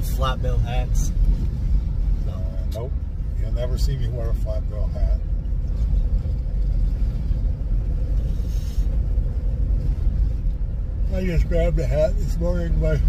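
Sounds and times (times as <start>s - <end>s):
road and engine rumble in car: 0.0s - 13.0s
rush of air: 6.6s - 10.6s.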